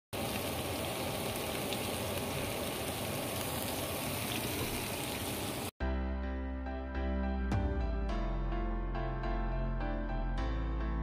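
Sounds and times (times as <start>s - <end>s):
fish sizzling in oil: 0.1s - 5.7s
background music: 5.8s - 11.0s.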